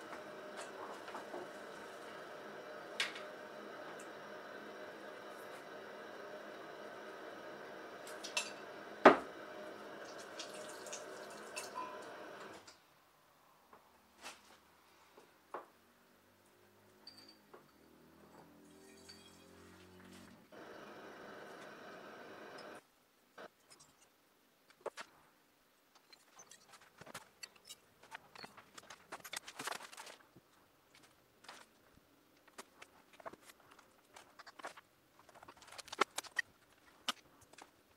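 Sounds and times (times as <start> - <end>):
steady hum: 0.0 - 12.7, 20.5 - 22.8.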